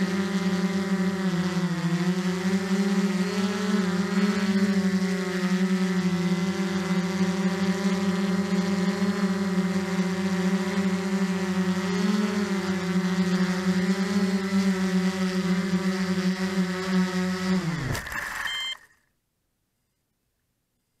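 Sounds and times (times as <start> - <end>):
quadcopter motors and propellers: 0.0 - 19.1
short high beep: 18.2 - 18.9.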